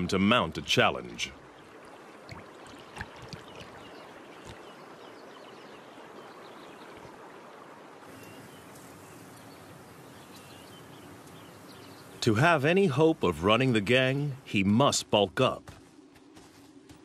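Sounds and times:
water lapping and trickling: 0:00.0 - 0:14.1
soft splashes: 0:01.3 - 0:10.4
faint bird chirps: 0:08.1 - 0:12.3.

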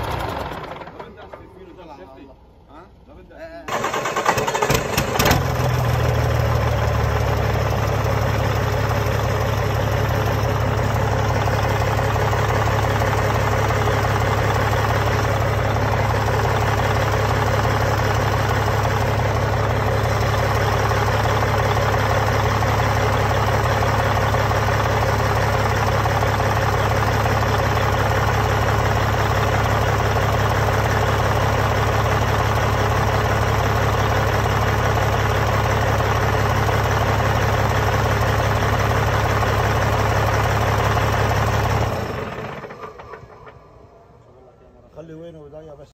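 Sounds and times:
diesel engine idling: 0:00.0 - 0:45.8.

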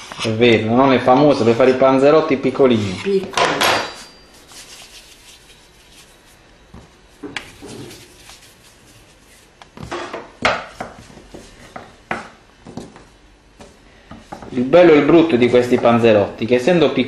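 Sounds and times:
hands working dough: 0:02.6 - 0:16.1.

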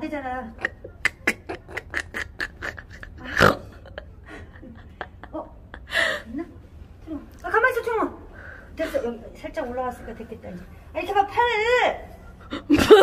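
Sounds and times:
woman laughing breathlessly: 0:00.6 - 0:06.5.

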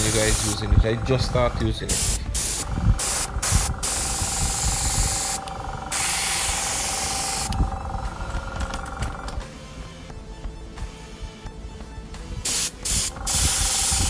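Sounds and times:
airbrush spraying air hiss: 0:00.0 - 0:00.7, 0:01.9 - 0:07.6, 0:12.4 - 0:14.0.

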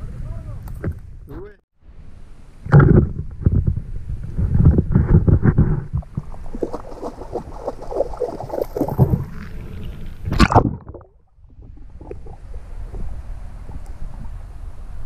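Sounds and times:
water splashing and sloshing: 0:02.7 - 0:14.4.

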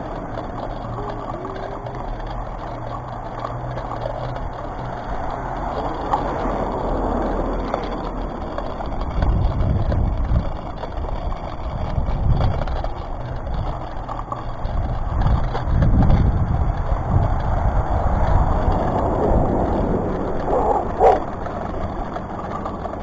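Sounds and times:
road noise: 0:00.0 - 0:23.0
wind on microphone: 0:09.0 - 0:13.8, 0:14.5 - 0:22.0.

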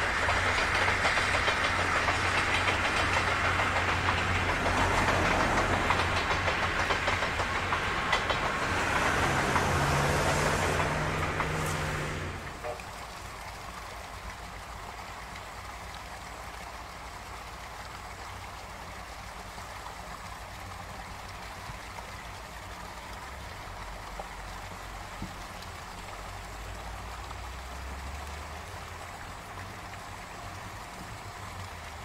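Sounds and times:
steam locomotive rumble: 0:00.0 - 0:15.3
steady outdoor hiss: 0:00.0 - 0:32.0.

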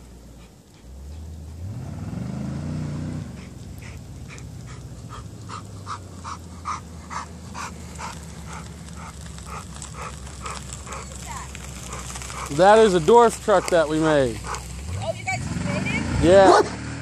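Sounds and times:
low engine hum: 0:00.0 - 0:17.0
dog barking: 0:16.4 - 0:16.8.

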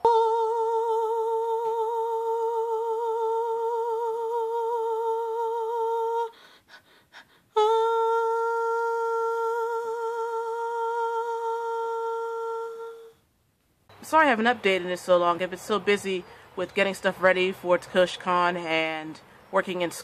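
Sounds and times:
woman humming: 0:00.0 - 0:06.4, 0:07.5 - 0:13.2.

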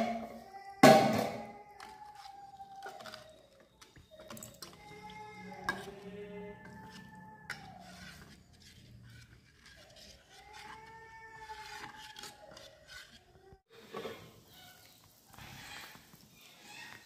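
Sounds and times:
ladle stirring in steel bowl: 0:01.8 - 0:14.3.

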